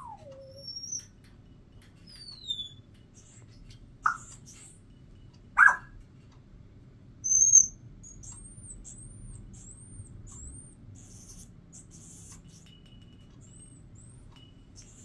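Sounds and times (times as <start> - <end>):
parrot high whistle: 0.0 - 1.0, 2.1 - 2.8, 7.2 - 7.8
parrot high chirps: 0.0 - 1.2, 2.0 - 3.4, 4.0 - 4.7, 5.6 - 6.0, 7.2 - 12.4
parrot squawk: 4.0 - 4.4, 5.6 - 6.0.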